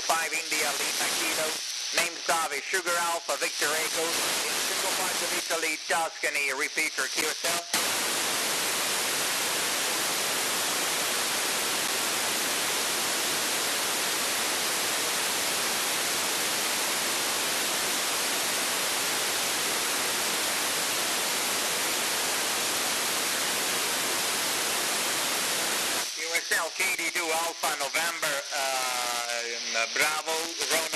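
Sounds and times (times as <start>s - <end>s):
radio static hiss: 0.0s - 30.9s.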